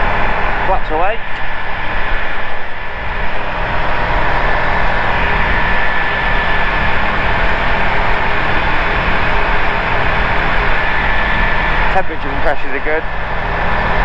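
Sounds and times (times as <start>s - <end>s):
rush of air: 0.0s - 8.0s
aircraft engine and propeller: 0.0s - 14.0s.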